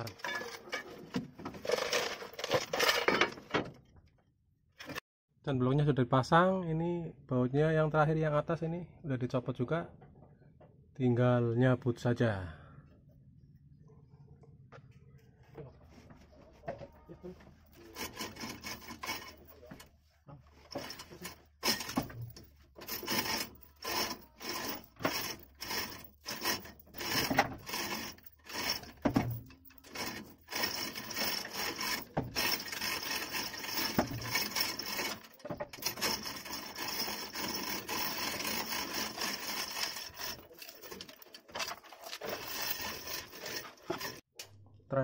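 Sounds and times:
metal scraping and rubbing: 15.8 - 44.4
steady rasping noise: 17.0 - 19.9, 20.6 - 44.3.

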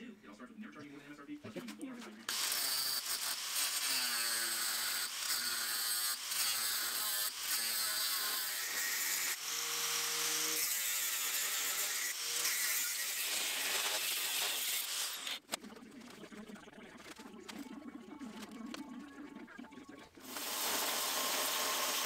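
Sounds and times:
arc welder hissing: 20.2 - 22.0.

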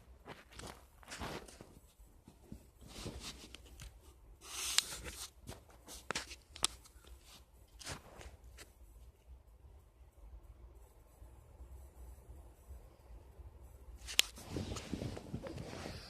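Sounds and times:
bedding rustling: 0.0 - 6.5, 7.1 - 8.8, 14.1 - 16.0.

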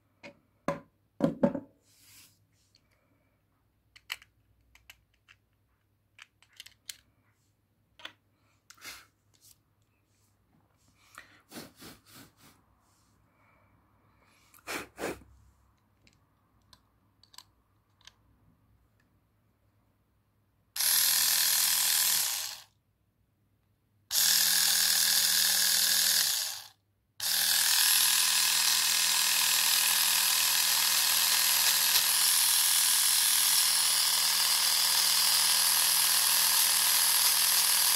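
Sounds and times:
plastic clicks: 3.9 - 7.1, 8.0 - 8.8, 16.0 - 18.2
battery motor whirring: 20.8 - 22.6, 24.1 - 37.9.

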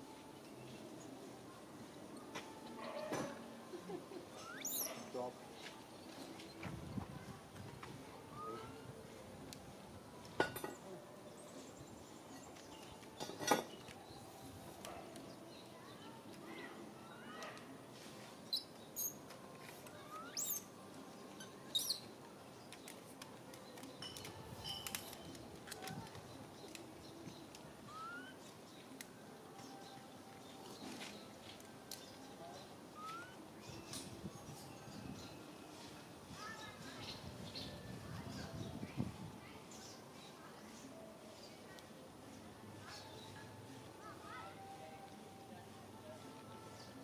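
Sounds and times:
small animals chirping and squeaking: 4.3 - 5.2, 18.5 - 19.2, 19.9 - 20.7, 21.4 - 22.1, 27.8 - 28.4, 33.0 - 34.7.

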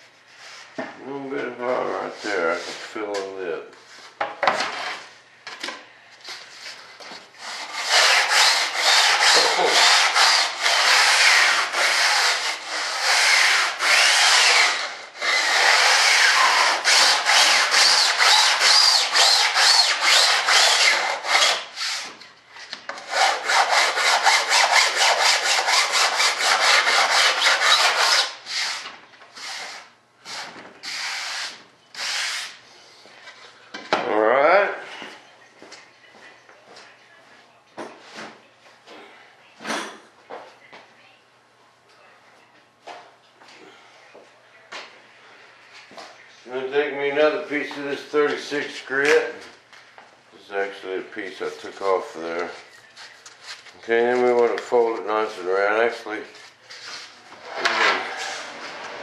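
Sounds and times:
sandpaper rasping on wood: 7.4 - 22.1, 23.0 - 28.8, 29.4 - 32.6.

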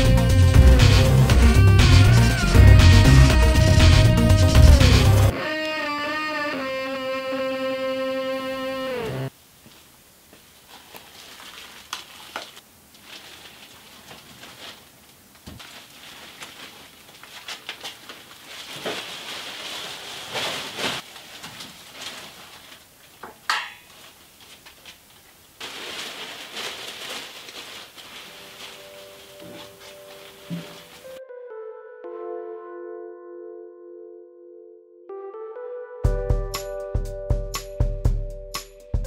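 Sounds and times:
plastic sheeting crinkling: 0.0 - 5.3, 9.6 - 31.2
electric guitar music: 0.0 - 9.3.

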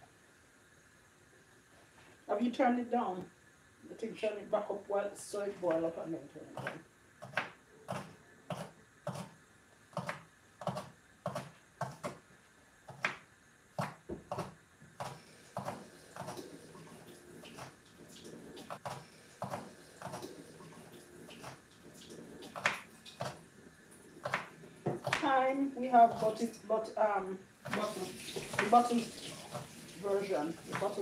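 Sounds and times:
knife chopping on plastic board: 6.6 - 12.2, 12.9 - 13.2, 13.8 - 16.4, 22.5 - 23.4, 24.2 - 25.3.

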